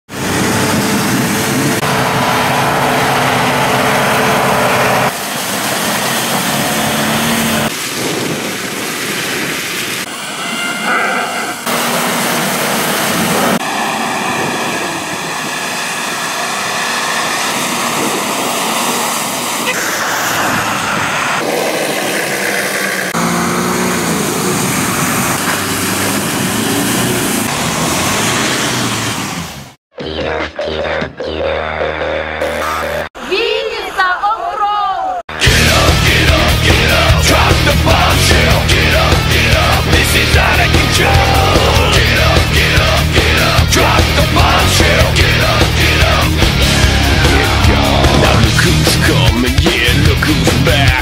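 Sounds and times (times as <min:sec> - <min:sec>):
off-road vehicle engines revving: 0:00.0 - 0:29.8, 0:35.3 - 0:51.0
tyres churning mud: 0:00.1 - 0:29.8, 0:35.3 - 0:51.0.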